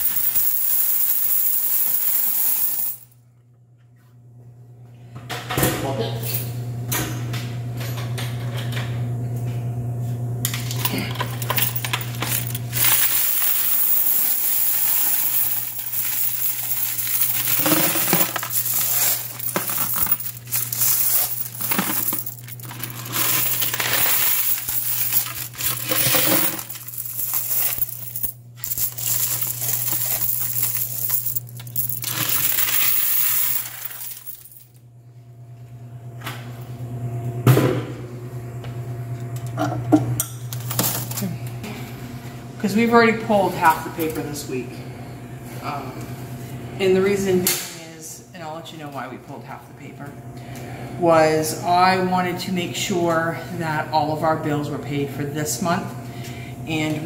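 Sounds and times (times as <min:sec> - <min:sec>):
coins clattering and jingling: 0:00.0 - 0:03.1, 0:10.8 - 0:34.7
steady low hum: 0:02.8 - 0:57.0.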